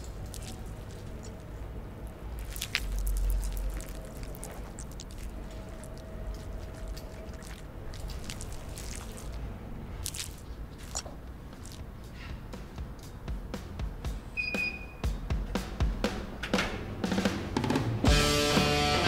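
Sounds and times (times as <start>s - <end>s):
wet hands rubbing together: 0.0s - 1.5s, 2.4s - 13.2s
faint steady hum: 0.0s - 14.9s.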